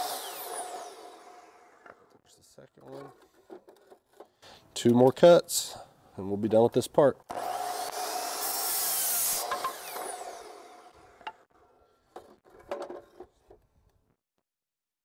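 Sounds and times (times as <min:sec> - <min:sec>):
saw blade spinning down whine: 0:00.0 - 0:01.8
miter saw cutting wood: 0:00.0 - 0:02.2, 0:07.3 - 0:11.5.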